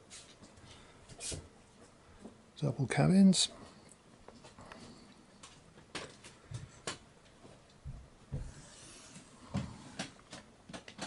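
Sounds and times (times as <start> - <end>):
footsteps on wooden floor: 7.4 - 8.7.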